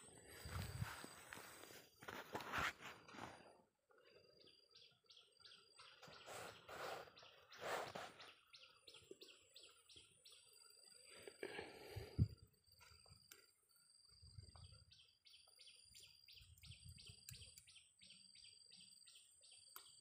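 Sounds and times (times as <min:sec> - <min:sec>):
faint bird chirping: 0:00.0 - 0:20.0
rustling of handling: 0:00.2 - 0:03.5.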